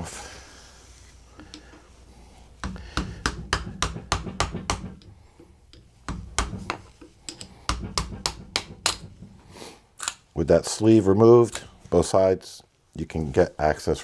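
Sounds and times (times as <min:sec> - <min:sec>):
screwdriver tapping metal: 0:02.6 - 0:09.3.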